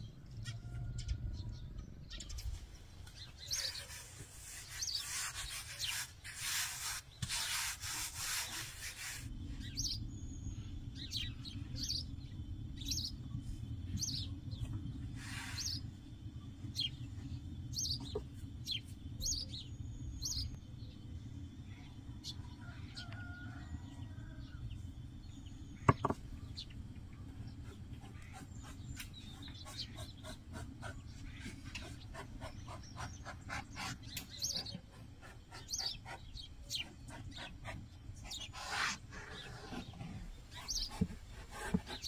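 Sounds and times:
small birds chirping: 0.0 - 42.0
rolling pin rolling dough: 3.8 - 9.2.

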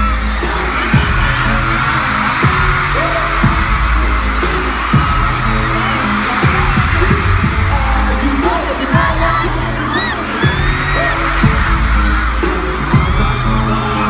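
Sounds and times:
crowd screaming: 0.0 - 14.0
hip-hop beat with heavy bass: 0.0 - 14.0
person rapping: 0.0 - 14.0.

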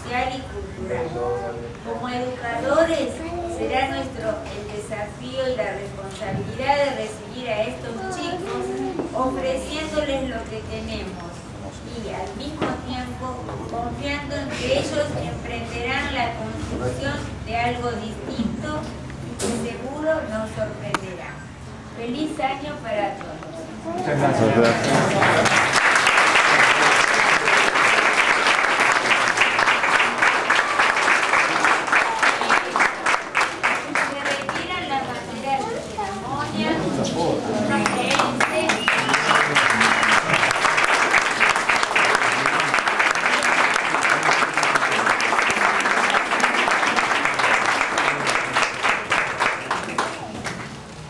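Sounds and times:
crowd applauding: 24.4 - 34.7, 37.8 - 50.8.

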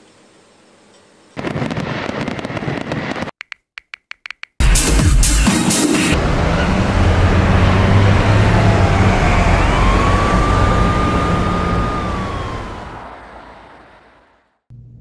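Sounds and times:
emergency vehicle siren: 6.2 - 14.5
low engine rumble: 6.2 - 15.0.

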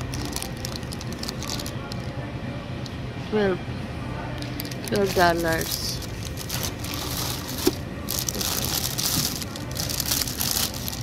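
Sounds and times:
plastic flower sleeves crinkling: 0.0 - 2.1, 4.4 - 11.0.

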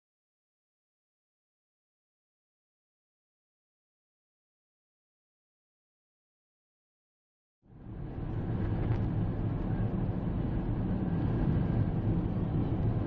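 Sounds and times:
car engine and tyre rumble: 7.7 - 13.0.

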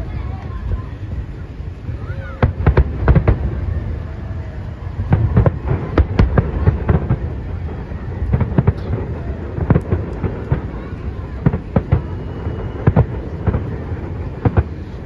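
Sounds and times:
fireworks bursting with sharp bangs: 0.0 - 15.0
low rumble: 0.0 - 15.0.

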